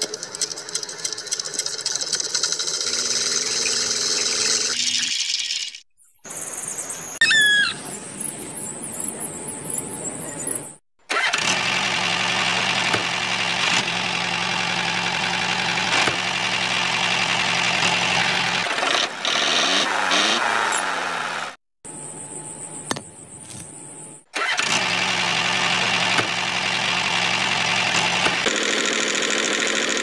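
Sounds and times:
short squeal: 0:07.2 - 0:07.8
engine running steadily: 0:11.2 - 0:19.5, 0:24.4 - 0:30.0.

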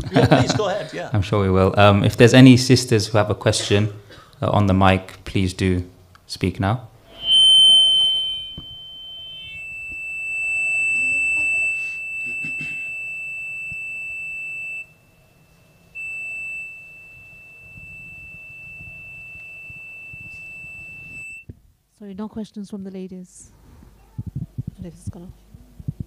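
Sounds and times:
high-pitched audio feedback whistle: 0:07.0 - 0:21.5.

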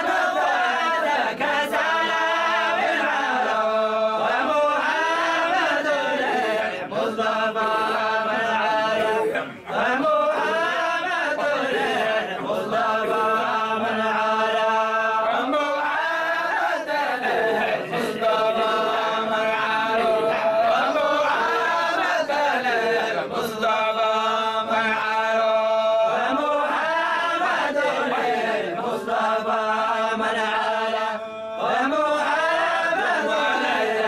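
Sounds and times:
male voices chanting together: 0:00.0 - 0:34.0.

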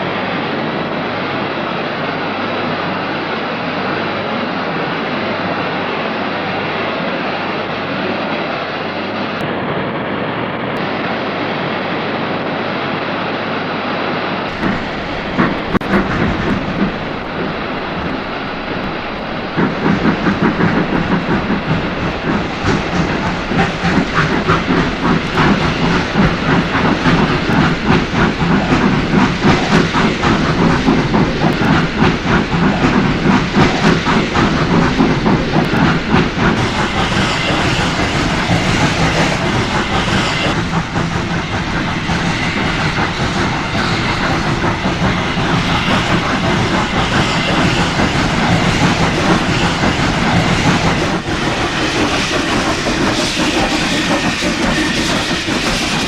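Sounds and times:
steam hissing: 0:14.5 - 0:56.0
steam train clattering: 0:14.5 - 0:56.0.

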